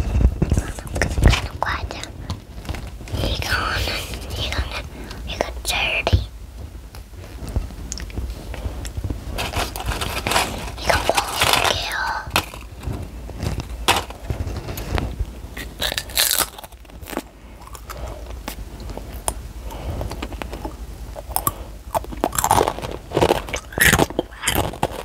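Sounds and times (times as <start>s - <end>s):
child crunching chips: 9.4s - 14.9s, 15.6s - 25.0s.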